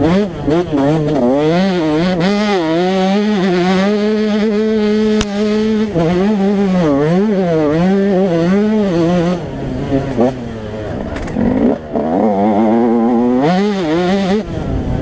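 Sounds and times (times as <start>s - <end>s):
two-stroke engine revving: 0.0s - 15.0s
sharp click: 5.1s - 5.4s.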